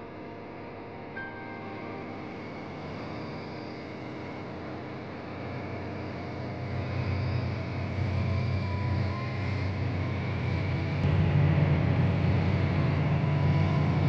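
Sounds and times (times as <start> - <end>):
low rumble: 9.7 - 14.0.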